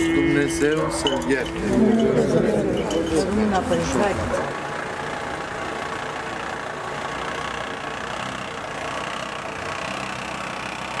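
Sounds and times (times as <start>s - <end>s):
car engine crawling over cobblestones: 2.7s - 11.0s.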